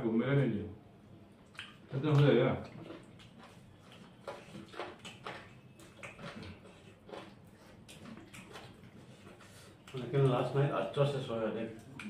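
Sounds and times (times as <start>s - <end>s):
chewing: 1.4s - 11.0s.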